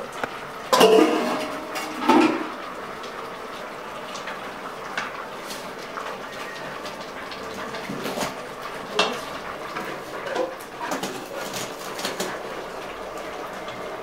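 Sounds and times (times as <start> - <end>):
metal pot lid clanging: 0.7 - 2.5.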